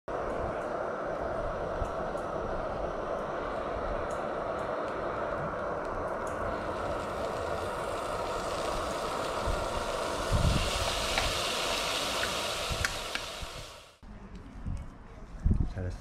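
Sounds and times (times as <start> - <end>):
gas stove burner hiss: 0.1 - 14.0
beef sizzling in a pan: 6.4 - 14.0.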